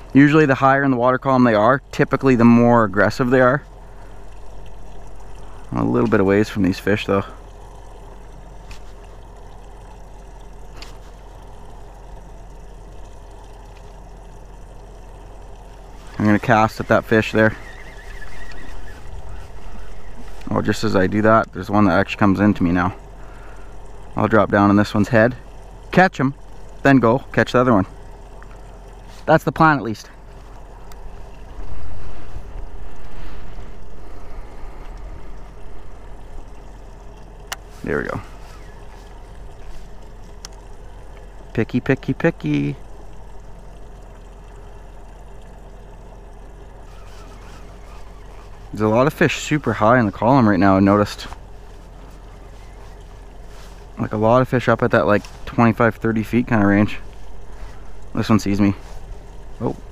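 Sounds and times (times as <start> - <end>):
boat motor humming: 0.0 - 59.9
faint clicks: 3.6 - 6.2, 7.5 - 15.9, 36.2 - 37.8, 38.4 - 41.5
wind buffeting microphone: 16.9 - 21.5.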